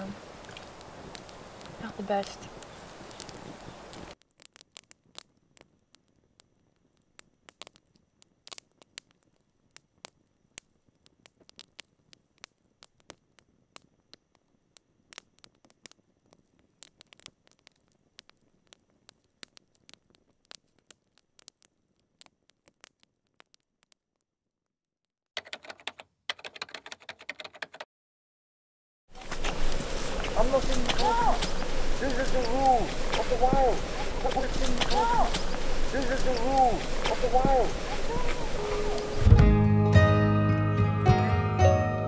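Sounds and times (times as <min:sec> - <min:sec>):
faint sharp crackling clicks: 0:00.4 - 0:24.2, 0:29.2 - 0:39.2.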